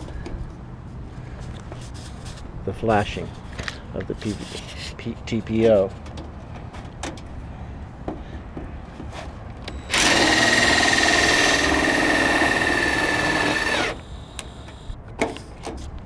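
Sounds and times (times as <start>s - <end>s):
cordless drill driving screw: 9.7s - 14.9s.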